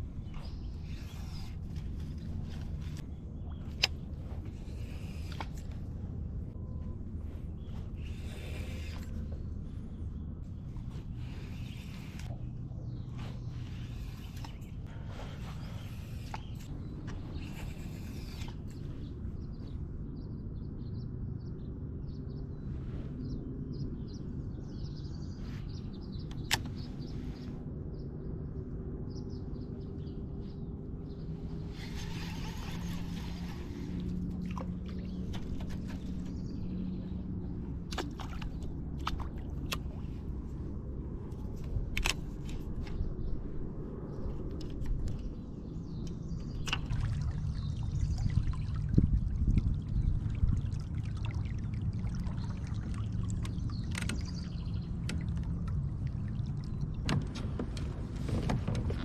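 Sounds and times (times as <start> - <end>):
low steady hum: 0.0 - 59.0
water lapping against kayak hull: 46.2 - 59.0.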